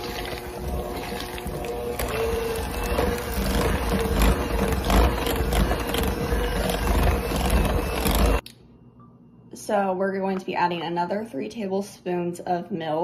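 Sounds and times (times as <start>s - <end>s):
electric hand mixer running: 0.0s - 8.4s
mixer clicks: 0.0s - 8.6s.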